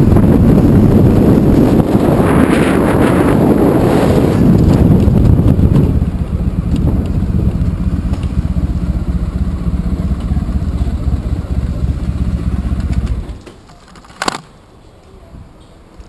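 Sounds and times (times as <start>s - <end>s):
wind rush on microphone: 0.0s - 13.4s
motorcycle engine idling: 5.1s - 13.4s.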